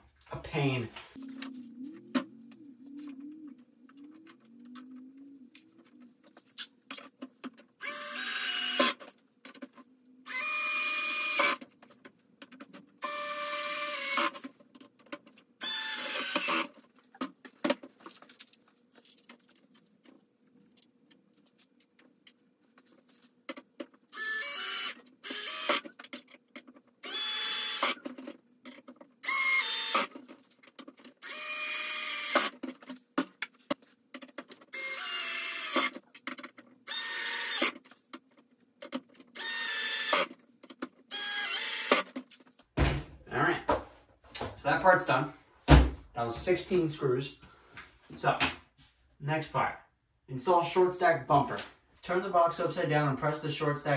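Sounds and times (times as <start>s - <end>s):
cordless drill whining: 7.8s - 9.0s, 10.3s - 11.6s, 13.0s - 14.4s, 15.6s - 16.7s, 24.1s - 25.9s, 27.0s - 28.0s, 29.2s - 30.1s, 31.2s - 32.6s, 34.7s - 36.0s, 36.9s - 37.8s, 39.4s - 40.3s, 41.1s - 42.0s.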